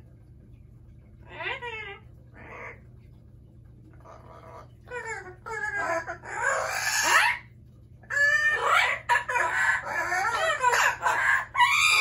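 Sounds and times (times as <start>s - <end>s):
parrot squawking: 1.3s - 2.8s, 4.1s - 12.0s.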